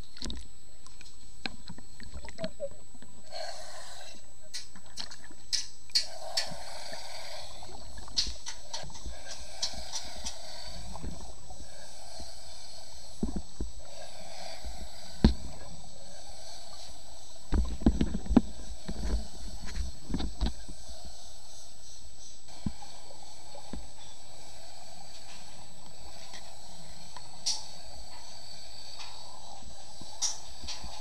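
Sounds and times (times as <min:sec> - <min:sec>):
muffled underwater noise: 0:01.4 - 0:05.4.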